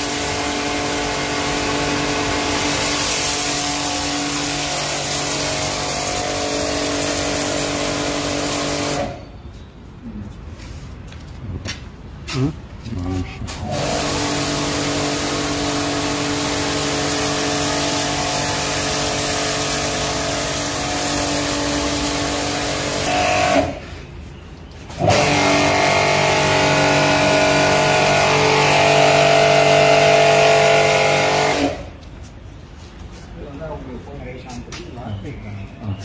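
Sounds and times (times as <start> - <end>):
pressure washer running: 0.0 - 9.2, 13.5 - 24.0, 24.9 - 32.0.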